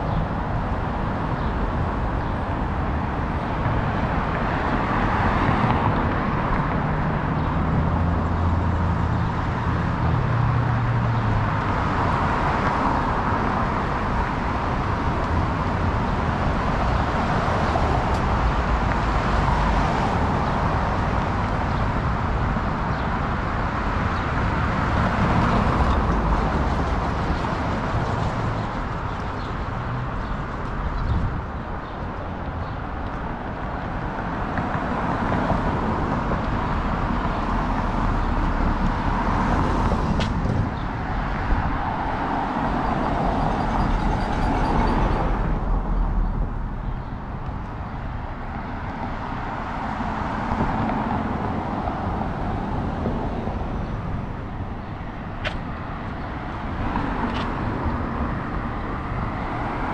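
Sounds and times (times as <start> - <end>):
cars passing: 0.0 - 59.9.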